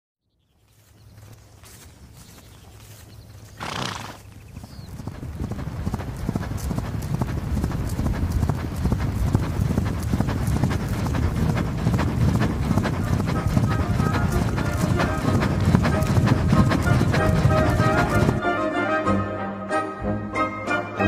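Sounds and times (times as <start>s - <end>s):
galloping hoofbeats on grass: 0.4s - 18.6s
horse neighing: 3.6s - 4.3s.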